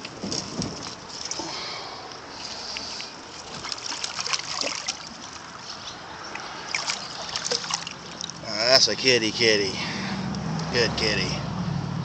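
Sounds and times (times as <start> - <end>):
water trickling and splashing: 0.0 - 9.4.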